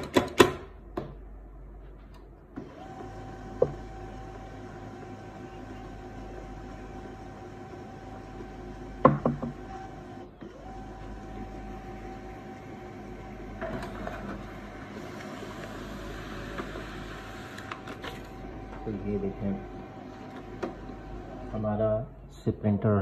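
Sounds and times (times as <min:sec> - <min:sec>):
laser printer motor whine: 0:02.6 - 0:21.7
printer clunk: 0:08.9 - 0:11.5, 0:13.5 - 0:17.0, 0:19.9 - 0:21.5.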